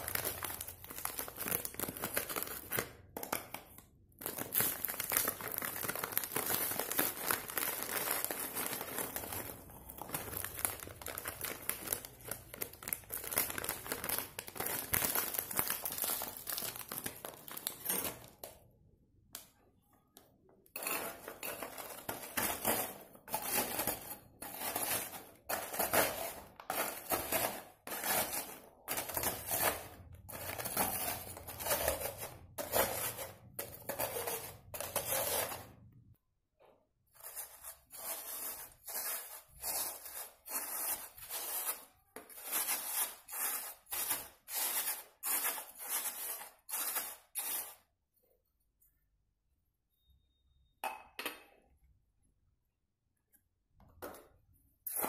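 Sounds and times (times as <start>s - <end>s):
packet crinkling: 0.0s - 18.4s
biscuits rattling into plastic bowl: 0.0s - 18.6s.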